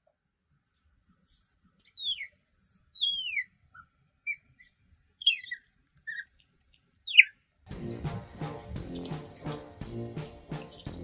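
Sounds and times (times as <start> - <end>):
otter squeaking chirps: 1.8 - 7.4.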